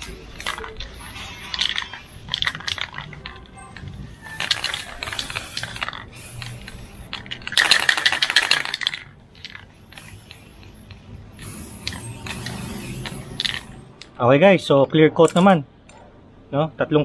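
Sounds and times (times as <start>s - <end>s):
spray can ball rattling: 0.0s - 13.9s
aerosol spray hissing: 4.7s - 7.2s, 9.8s - 13.4s.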